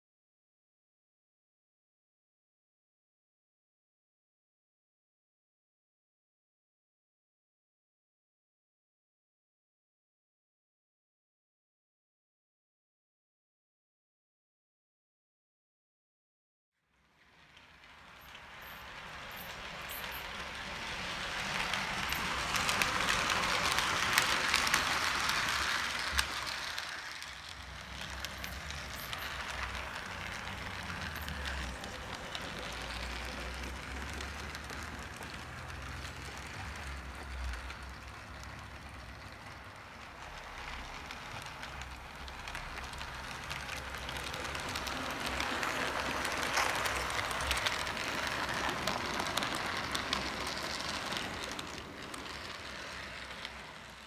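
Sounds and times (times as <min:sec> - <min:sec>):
model train rolling on track: 0:16.9 - 0:54.0.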